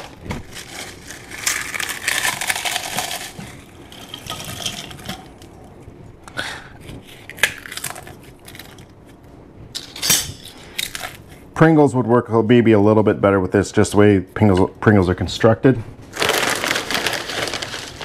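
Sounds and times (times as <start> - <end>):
potato chips crackling and crunching: 0.0 - 5.4, 7.3 - 8.9, 16.2 - 18.0.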